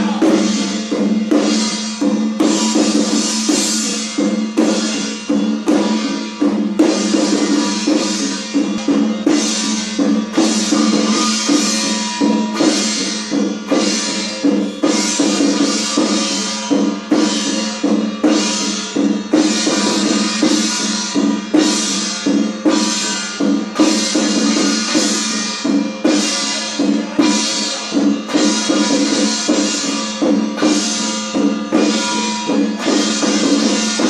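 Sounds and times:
cymbals clashing: 0.0s - 34.0s
drum beating: 0.0s - 34.0s
steady ringing tone: 7.3s - 25.0s.

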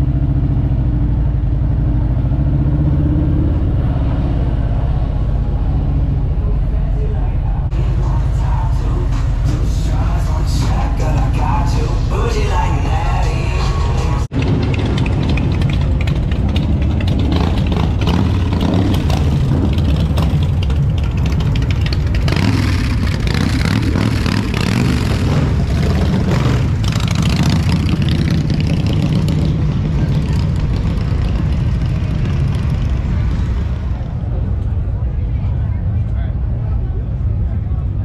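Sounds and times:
motorcycles riding past: 14.3s - 35.2s.

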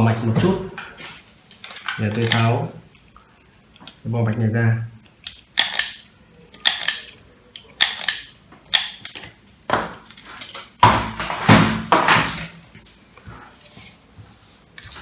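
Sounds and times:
plastic connectors clicking: 5.0s - 9.4s
rustling and scraping: 10.1s - 15.0s.

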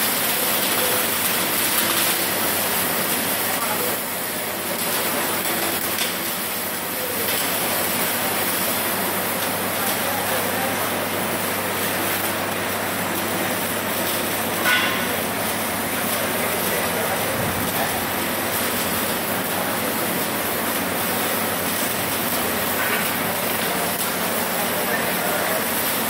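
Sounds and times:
welding arcs hissing: 0.0s - 26.0s
sharp clack: 14.6s - 15.2s.

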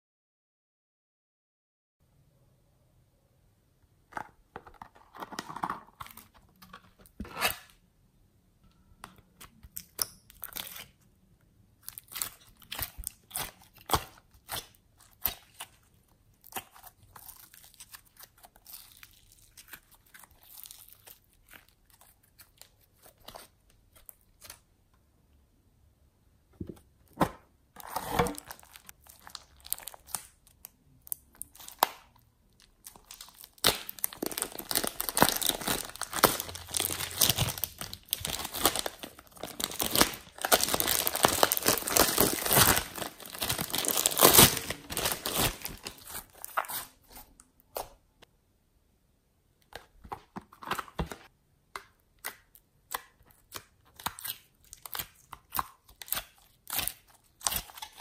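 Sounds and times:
sticky slime crackle: 11.8s - 24.6s, 28.3s - 47.2s
plastic bag crinkling: 27.8s - 30.2s, 32.6s - 46.7s.

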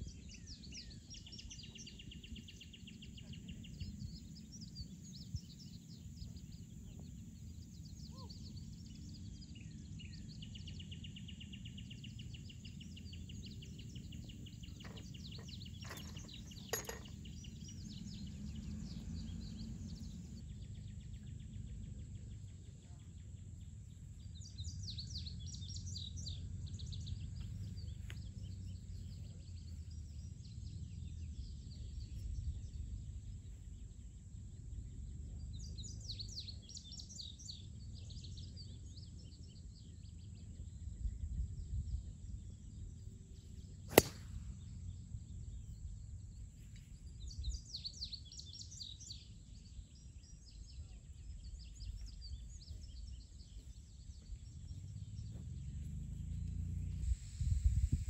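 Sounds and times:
birds singing: 0.0s - 58.0s
golf ball struck off tee: 14.8s - 17.4s, 43.9s - 44.7s
wind rumble on microphone: 24.2s - 58.0s.

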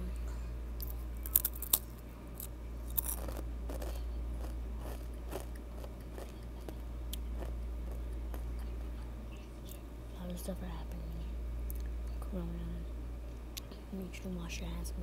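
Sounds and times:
low hum: 0.0s - 15.0s
chips crunching and chewing: 0.8s - 8.7s.

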